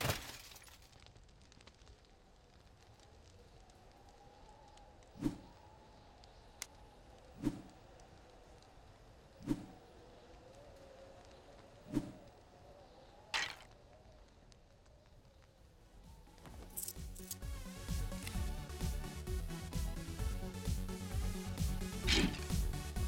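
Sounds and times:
hissing swish: 9.4 - 9.8.

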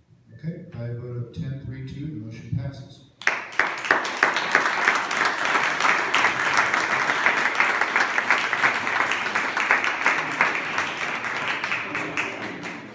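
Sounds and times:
audience applauding: 3.2 - 12.9.

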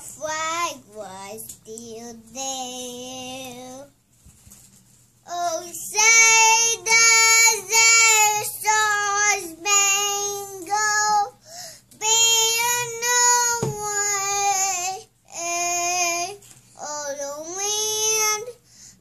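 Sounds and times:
child singing long held notes: 5.3 - 18.6.

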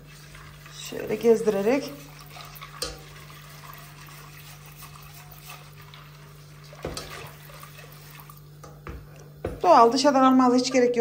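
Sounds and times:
liquid swishing in pot: 0.0 - 8.6
whisk knocking against pot: 6.8 - 7.3.

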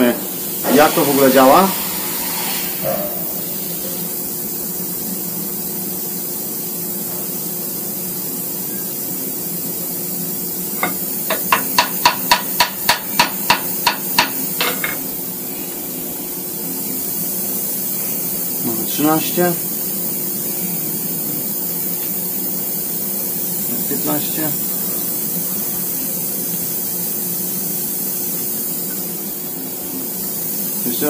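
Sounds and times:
steady background hiss: 0.0 - 31.0
small hammer tapping metal vise: 10.8 - 15.0.

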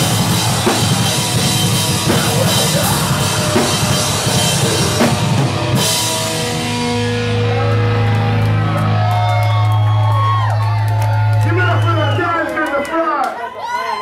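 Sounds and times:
distorted electric guitars: 0.0 - 10.3
drum kit: 0.0 - 12.2
heavy metal band playing: 0.0 - 12.4.

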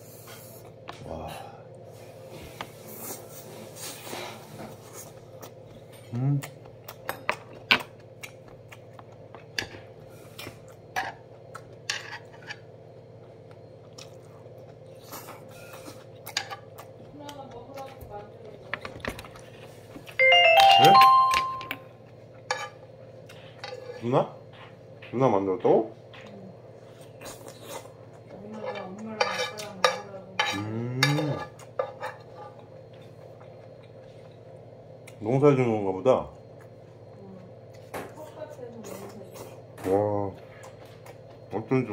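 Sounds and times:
steady low hum: 0.0 - 41.9
chewing: 4.8 - 20.2, 26.1 - 29.8, 30.5 - 35.2, 38.7 - 41.6
chopsticks tapping dishes: 28.5 - 32.7
man humming murmur: 30.6 - 31.4.

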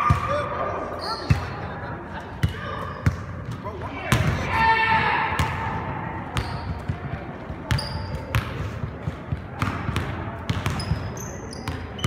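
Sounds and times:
sneakers squeaking on floor: 0.9 - 1.6, 6.3 - 8.8, 9.7 - 12.0.

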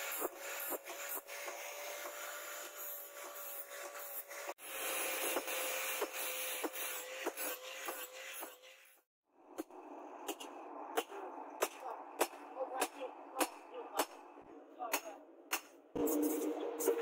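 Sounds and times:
angle grinder grinding steel: 0.0 - 9.1.

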